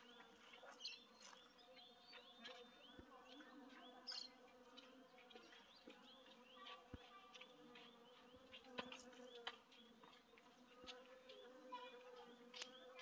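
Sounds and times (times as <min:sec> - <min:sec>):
honeybees buzzing: 0:10.6 - 0:13.0.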